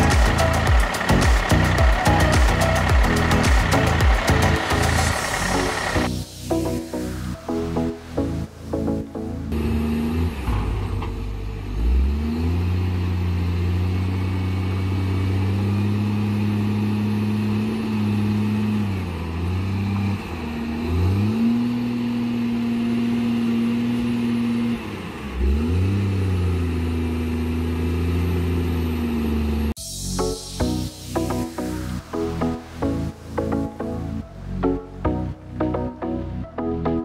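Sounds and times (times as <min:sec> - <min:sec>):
heavy engine drone revving: 0:00.0 - 0:36.5.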